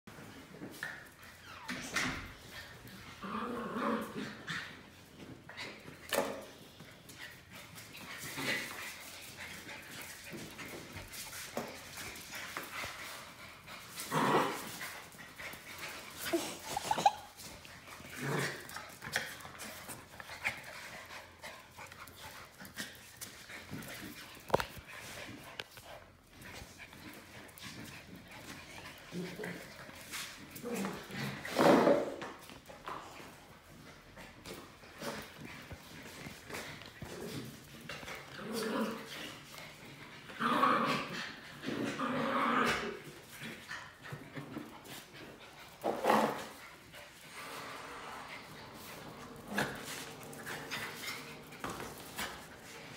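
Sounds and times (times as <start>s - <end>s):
dogs scuffling: 0.1s - 52.9s
paws clicking on concrete: 6.4s - 31.4s.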